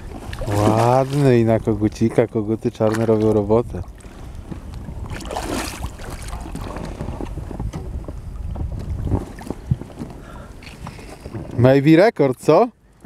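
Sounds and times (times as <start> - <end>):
wind rumble on microphone: 0.0 - 12.0
fish splashing at water surface: 5.1 - 6.7.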